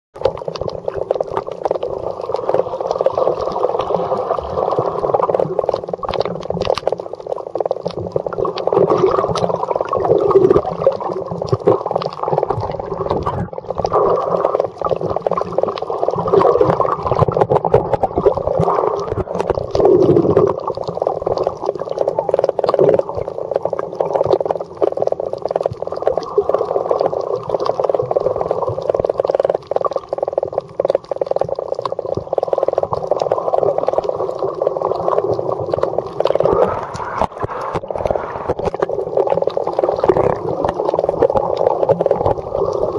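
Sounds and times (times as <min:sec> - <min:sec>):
underwater water churning: 0:00.2 - 0:42.9.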